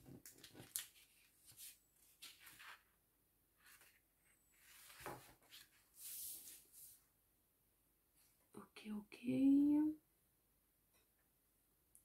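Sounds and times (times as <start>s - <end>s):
paper rustling: 0.0s - 2.9s, 4.6s - 7.0s.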